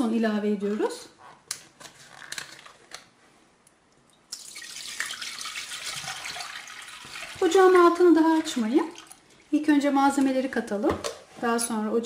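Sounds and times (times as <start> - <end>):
milk pouring into metal saucepan: 4.3 - 7.6.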